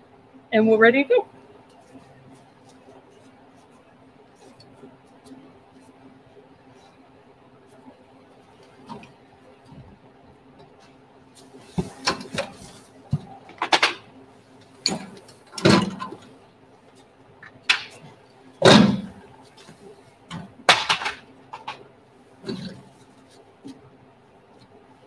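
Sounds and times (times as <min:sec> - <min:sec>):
knocks and clatters at metal cart: 0:14.8 - 0:16.2, 0:18.6 - 0:19.2, 0:20.3 - 0:21.8.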